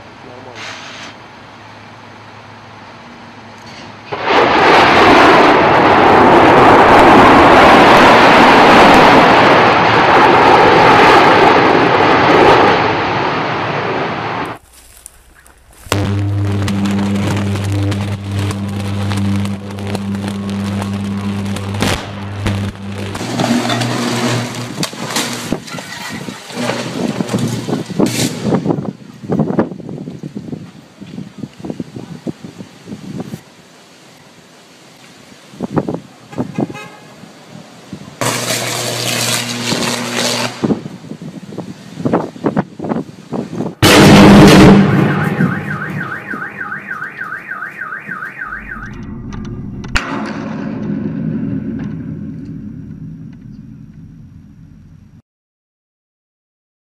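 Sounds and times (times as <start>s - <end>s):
power lines crackling: 3.0s - 30.4s, 38.1s - 41.0s
loud blast: 4.1s - 14.6s, 15.6s - 25.8s, 43.8s - 46.8s, 48.4s - 54.9s
wind noise: 4.2s - 33.5s, 35.5s - 38.4s, 39.2s - 46.6s
electrical buzz: 14.3s - 28.7s, 38.2s - 40.9s, 43.8s - 46.6s, 48.4s - 55.2s
loud sharp bangs: 15.6s - 25.9s, 43.8s - 52.8s
car alarm warbling: 44.8s - 49.6s.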